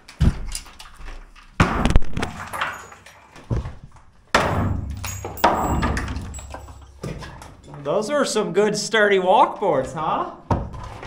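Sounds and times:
wooden boards banging: 1.6s - 7.7s.

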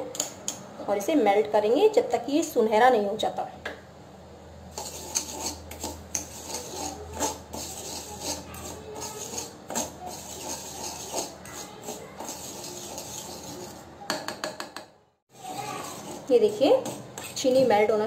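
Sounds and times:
spoon scraping sugar in metal pan: 4.7s - 14.0s, 15.3s - 18.0s.

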